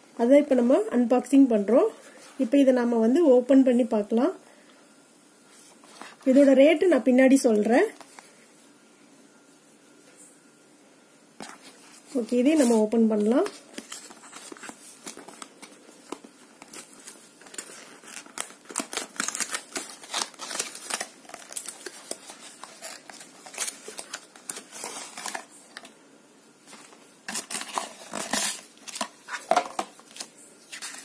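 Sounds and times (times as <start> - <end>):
cardboard box being unpacked: 13.4 - 25.9, 26.7 - 31.0.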